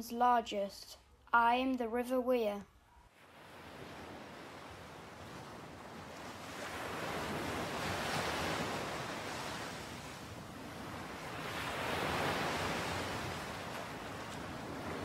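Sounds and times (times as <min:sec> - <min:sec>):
sea waves washing onto shore: 0:03.2 - 0:15.0.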